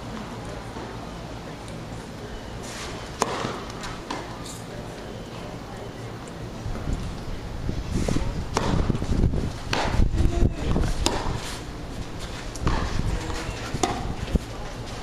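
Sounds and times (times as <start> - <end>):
tennis balls struck by rackets: 3.1 - 4.5, 8.5 - 11.6, 12.5 - 14.3
steady low rumble: 6.1 - 15.0
tennis ball bounces: 8.5 - 8.9, 9.6 - 10.0, 10.7 - 11.6, 13.7 - 14.3.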